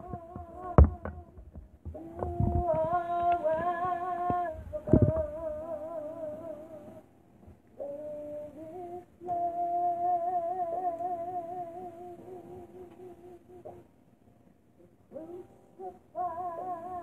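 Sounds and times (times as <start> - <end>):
wordless humming: 0.0 - 7.0
faint steady tones: 0.0 - 17.0.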